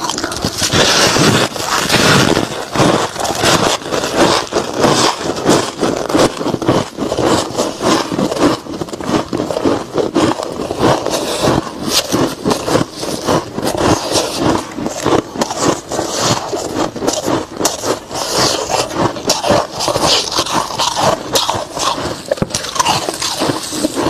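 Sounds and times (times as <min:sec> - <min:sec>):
frost being chewed: 0:00.0 - 0:24.0.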